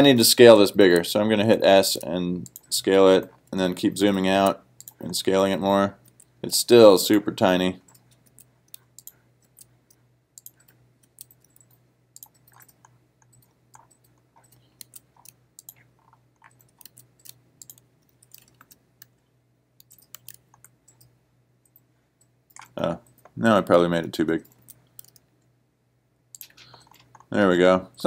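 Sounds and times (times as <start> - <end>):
low steady hum: 0.0 - 28.0
mouse and keyboard clicking: 7.8 - 19.2, 19.8 - 21.1, 24.4 - 25.3, 26.3 - 27.3.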